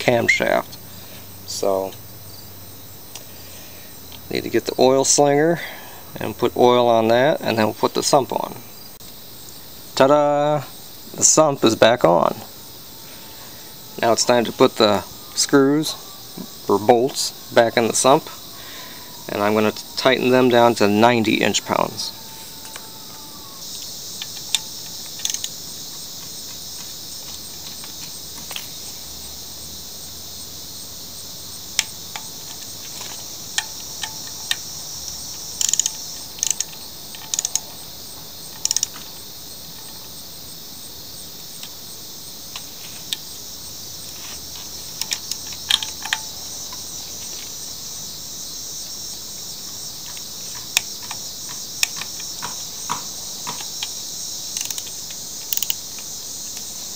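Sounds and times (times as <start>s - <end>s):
insects chirring: 0.0s - 56.9s
ratchet wrench clicking: 24.2s - 25.5s, 31.8s - 37.7s, 38.5s - 39.0s, 44.9s - 46.8s, 54.5s - 55.8s.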